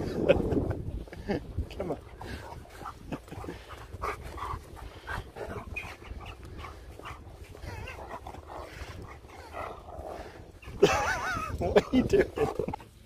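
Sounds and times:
dog panting: 2.0 - 11.1
dog whining: 7.6 - 8.3.

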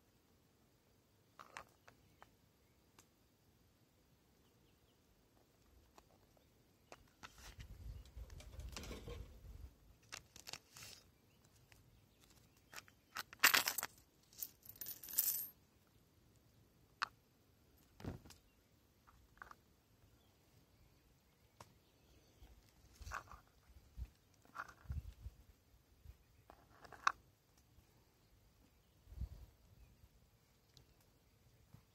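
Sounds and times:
coins and cards handled: 10.0 - 15.6, 22.9 - 23.6, 24.3 - 25.0, 26.5 - 27.2
coins clinking: 13.3 - 15.5.

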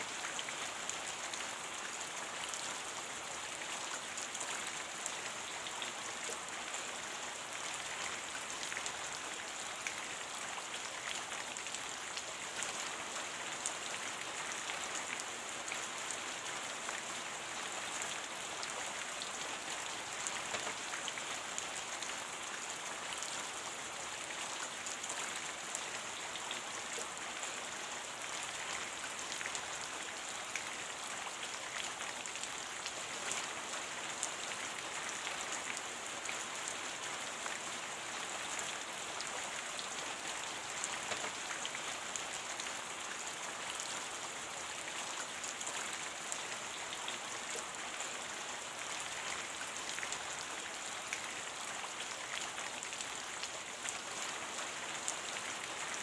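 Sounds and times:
rain patter: 0.0 - 56.0.

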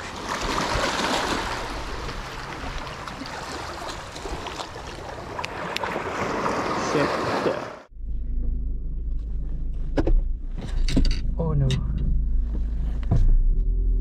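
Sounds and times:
seawater washing over rocks: 0.0 - 7.8.

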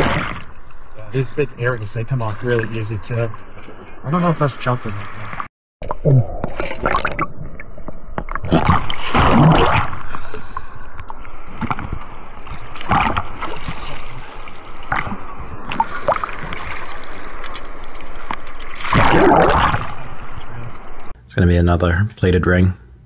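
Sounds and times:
surf water sloshing and gurgling: 0.0 - 5.5, 8.4 - 21.1
water splashes: 0.0 - 21.1.

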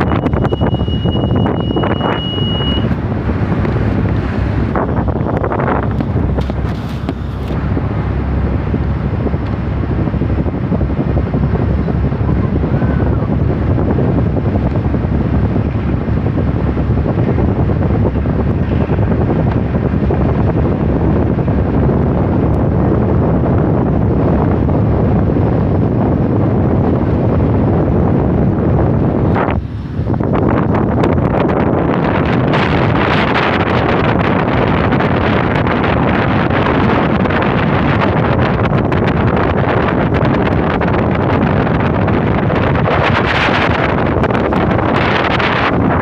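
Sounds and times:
boat running noise: 0.0 - 46.0
wind buffeting microphone: 0.0 - 46.0.

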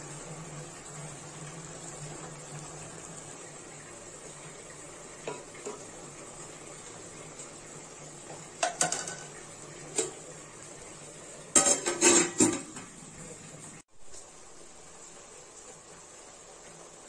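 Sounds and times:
metal lid clanking on pot: 8.6 - 9.3, 11.5 - 12.9.

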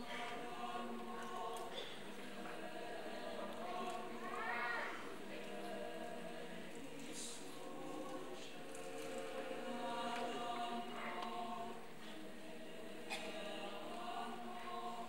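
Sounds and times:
mixed choir singing a cappella: 0.0 - 15.0.

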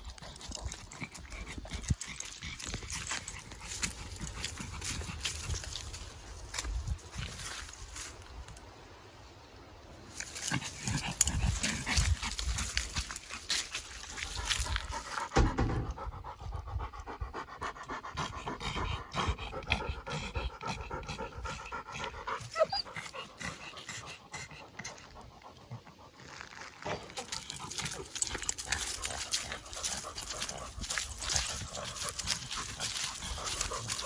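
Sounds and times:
dog panting: 0.0 - 6.0, 10.5 - 34.0
footsteps crunching dry leaves: 2.2 - 8.3, 10.1 - 15.2, 26.2 - 34.0.

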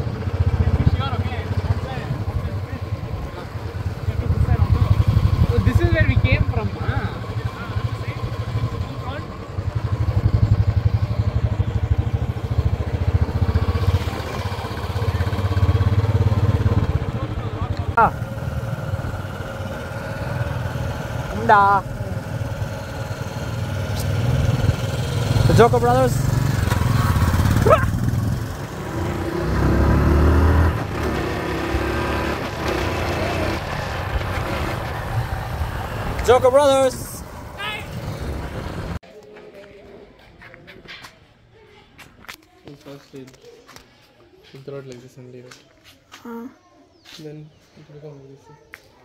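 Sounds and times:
vehicle engine rumbling: 0.0 - 39.0.

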